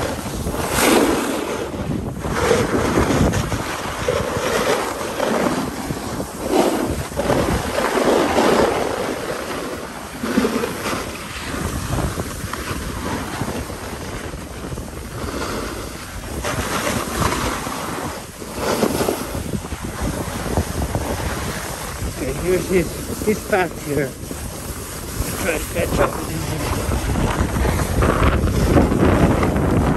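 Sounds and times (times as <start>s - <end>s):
snowboard edges scraping snow: 0.0s - 29.9s
wind rushing over microphone: 0.0s - 29.9s.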